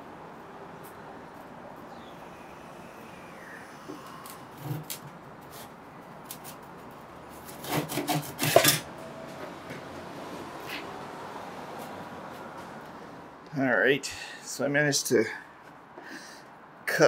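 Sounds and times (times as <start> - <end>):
handsaw cutting wood: 7.5 - 8.6.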